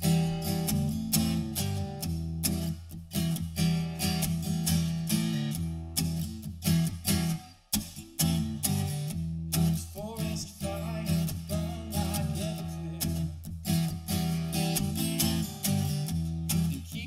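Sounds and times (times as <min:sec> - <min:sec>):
acoustic guitar strumming: 0:00.0 - 0:17.0
man singing: 0:09.6 - 0:13.4, 0:16.5 - 0:17.0.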